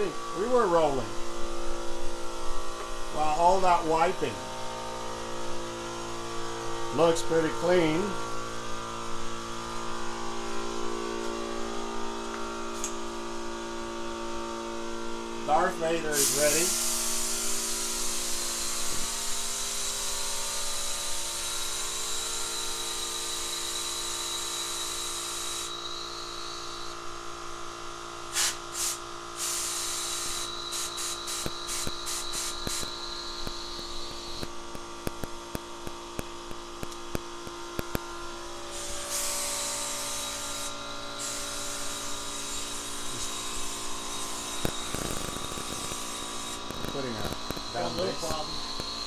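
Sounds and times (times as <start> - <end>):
air compressor motor hum: 0.0 - 49.0
spray gun hissing: 16.1 - 19.9, 28.3 - 34.4, 38.7 - 46.7.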